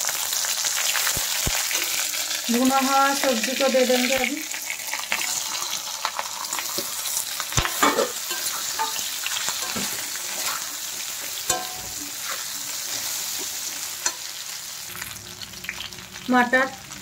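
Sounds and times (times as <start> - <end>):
vegetables sizzling in oil: 0.0 - 17.0
metal spatula scraping pan: 7.6 - 14.3.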